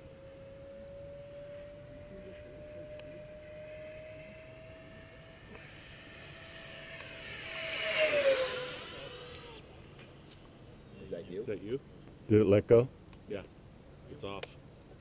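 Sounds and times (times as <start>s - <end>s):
model jet fan whining: 0.0s - 9.8s.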